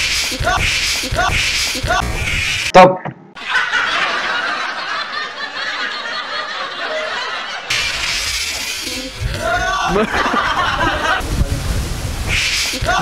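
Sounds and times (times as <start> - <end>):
chuckling and snickering: 3.4 - 8.1, 9.6 - 11.3.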